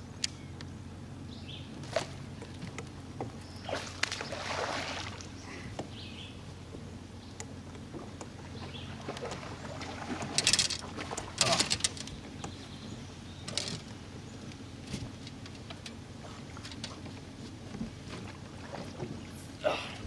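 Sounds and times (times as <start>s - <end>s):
low steady hum: 0.0s - 20.0s
clicks and taps of rod and reel: 1.9s - 3.4s, 6.7s - 8.4s, 10.2s - 12.6s, 13.4s - 18.4s
water rushing and splashing: 3.6s - 5.7s, 7.9s - 12.0s.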